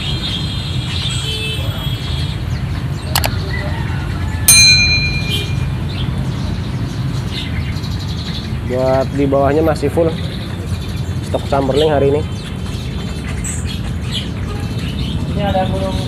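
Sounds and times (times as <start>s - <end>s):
road traffic rumble: 0.0s - 16.0s
songbirds chirping: 0.0s - 16.0s
bell-like ding: 4.5s - 5.9s.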